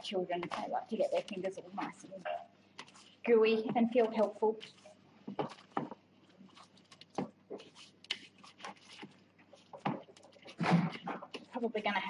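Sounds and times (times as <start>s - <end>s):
person speaking: 0.0s - 12.0s
crumble mixture rubbed by hand: 2.8s - 12.0s.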